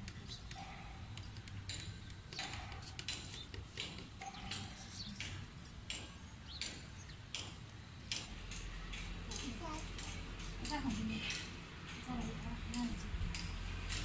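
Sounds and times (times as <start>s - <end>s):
metal spoons clinking on plates: 0.2s - 6.8s.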